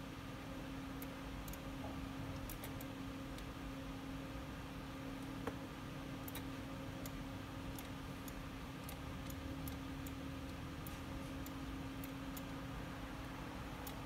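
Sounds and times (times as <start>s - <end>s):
low electrical hum: 0.0s - 14.0s
computer mouse clicks: 2.4s - 3.5s, 6.2s - 12.5s.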